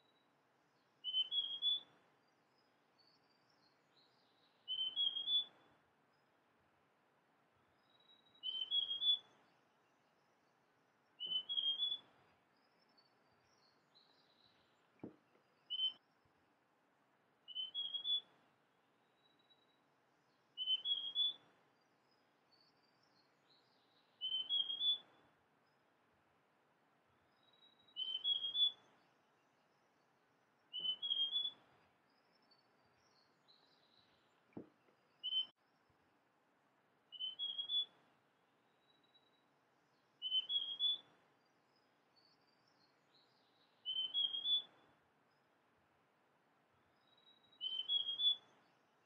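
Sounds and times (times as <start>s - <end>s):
bird whistled song: 1.0s - 5.7s, 7.8s - 9.5s, 11.2s - 16.1s, 17.5s - 18.4s, 19.1s - 19.7s, 20.3s - 21.5s, 22.5s - 25.2s, 27.3s - 29.1s, 30.6s - 34.3s, 34.9s - 35.8s, 37.1s - 38.0s, 38.8s - 45.4s, 47.0s - 48.8s
faint high chirps: 1.0s - 5.8s, 7.7s - 10.5s, 11.1s - 16.3s, 17.5s - 18.4s, 19.1s - 25.8s, 27.3s - 36.0s, 37.1s - 45.6s, 46.9s - 49.0s.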